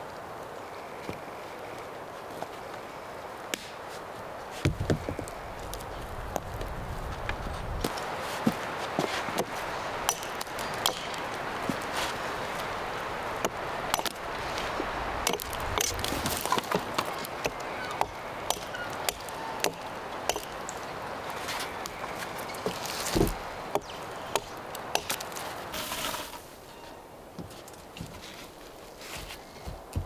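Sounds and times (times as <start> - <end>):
hatchet chopping wood: 9.4 - 11.2, 13.4 - 14.2, 15.2 - 20.6, 22.6 - 25.4.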